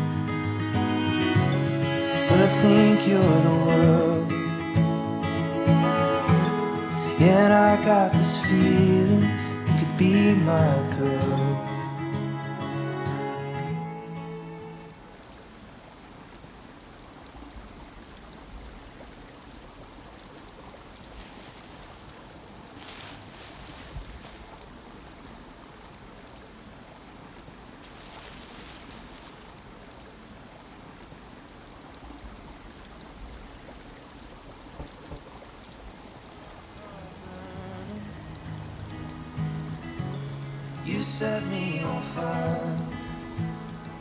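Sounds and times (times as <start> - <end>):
scratchy rustling: 21.1 - 22.1, 22.7 - 24.6
steady rushing noise: 34.6 - 35.6.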